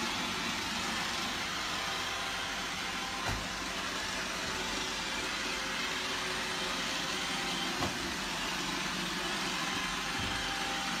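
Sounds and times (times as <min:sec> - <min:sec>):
robot vacuum whirring: 0:00.0 - 0:11.0.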